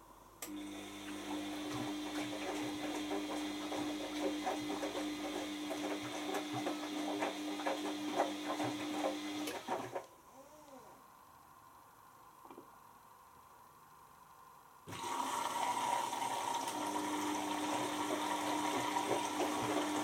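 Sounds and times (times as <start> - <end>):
washing machine motor hum: 0.4 - 10.1, 14.9 - 20.0.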